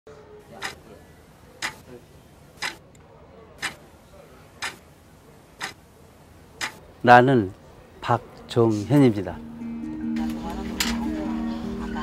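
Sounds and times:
clock ticking: 0:00.6 - 0:00.8, 0:01.6 - 0:01.8, 0:02.6 - 0:02.9, 0:03.6 - 0:03.8, 0:04.6 - 0:04.8, 0:05.6 - 0:05.8, 0:06.6 - 0:06.8.

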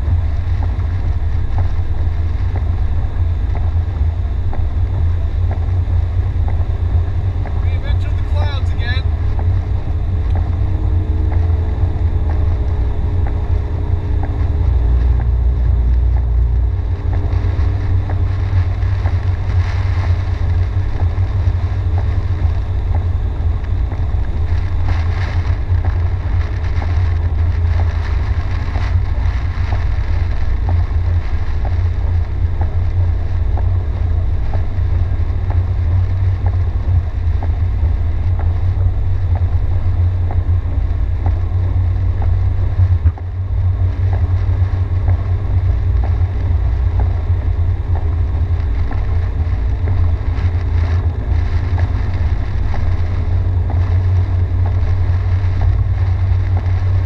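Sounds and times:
engine and tyres rumbling on wet road: 0:00.0 - 0:57.0
heavy rain hissing: 0:44.0 - 0:57.0.

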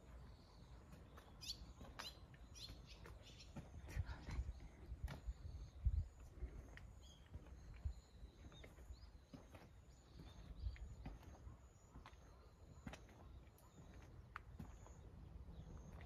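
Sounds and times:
footsteps on pavement: 0:00.0 - 0:16.0
small birds chirping: 0:00.0 - 0:16.0.

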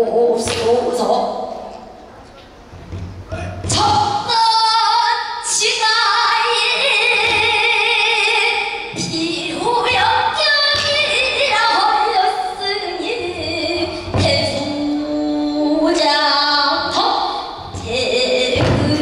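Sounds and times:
woman singing long wavering notes: 0:03.8 - 0:19.0.

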